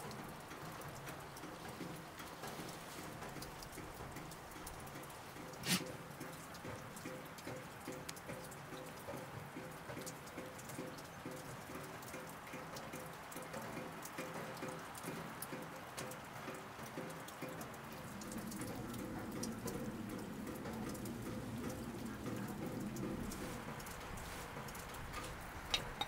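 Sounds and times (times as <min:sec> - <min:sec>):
water dripping: 0:00.0 - 0:26.0.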